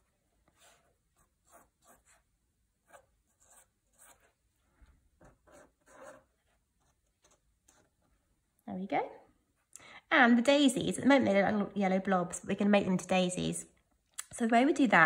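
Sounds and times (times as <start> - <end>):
pen scratching on paper: 0.5 - 4.4, 5.2 - 7.9.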